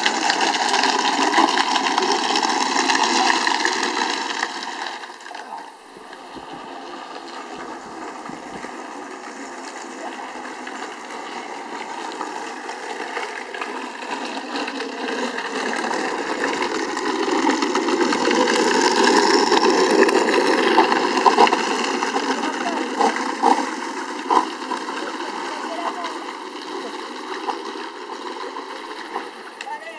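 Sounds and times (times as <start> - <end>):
plastic wheels rolling on asphalt: 0.0 - 29.9.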